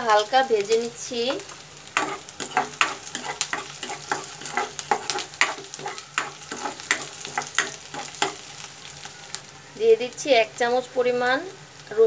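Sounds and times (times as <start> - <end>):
onions sizzling in oil: 0.0 - 12.0
spatula scraping and tapping pan: 1.3 - 8.9.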